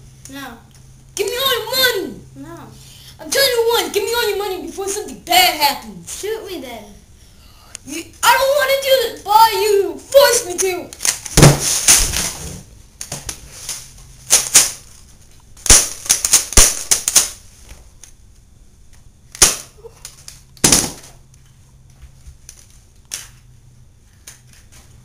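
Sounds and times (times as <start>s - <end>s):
toy pistol bangs: 15.6s - 17.4s, 19.4s - 19.8s, 20.6s - 21.1s.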